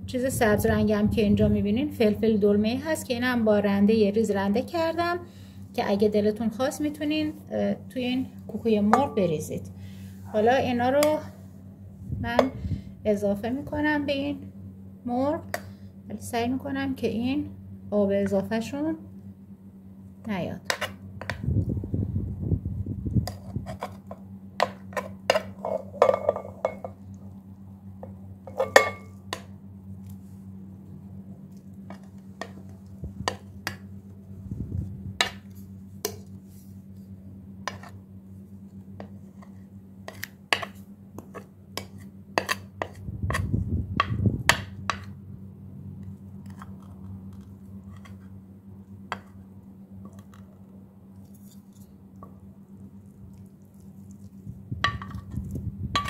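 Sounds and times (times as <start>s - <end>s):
steady low hum: 0.0s - 56.0s
spoon and plate clinking on glass bowl: 28.5s - 29.2s.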